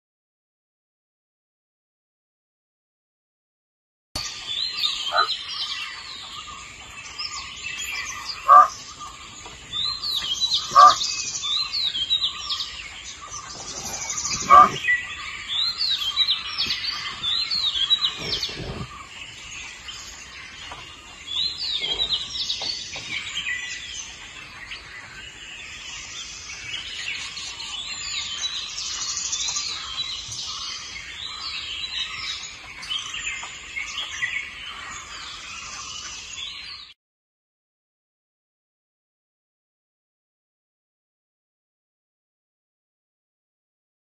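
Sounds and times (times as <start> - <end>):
small birds chirping: 4.2 - 37.0.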